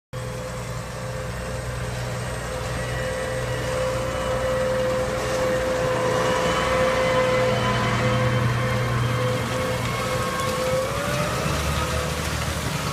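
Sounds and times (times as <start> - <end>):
tractor engine under load: 0.2 - 12.9.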